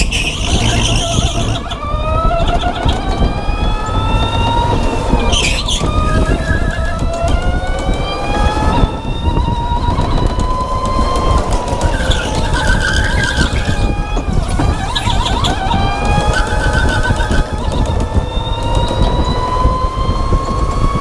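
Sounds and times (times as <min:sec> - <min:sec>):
tyres squealing: 0:00.0 - 0:08.2, 0:09.4 - 0:19.5
constant low rumble: 0:00.0 - 0:21.0
electric go-kart motor whine: 0:00.0 - 0:21.0.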